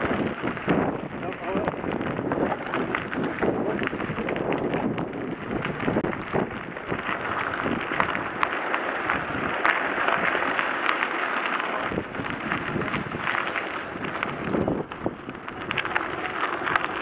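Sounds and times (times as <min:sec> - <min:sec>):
bike tyres crunching on gravel: 0:00.0 - 0:17.0
wind buffeting microphone: 0:00.0 - 0:17.0.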